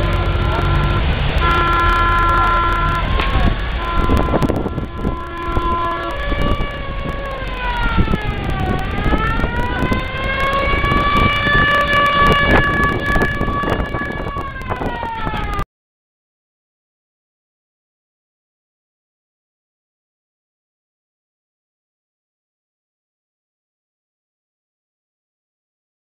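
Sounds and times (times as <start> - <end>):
car horn: 0.0 - 15.6
passing car engines: 0.0 - 15.6
siren wailing: 0.0 - 15.6.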